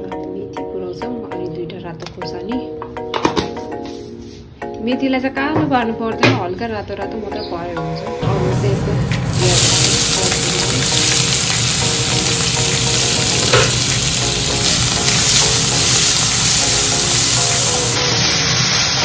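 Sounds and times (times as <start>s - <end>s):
onions sizzling in hot oil: 9.2s - 19.0s.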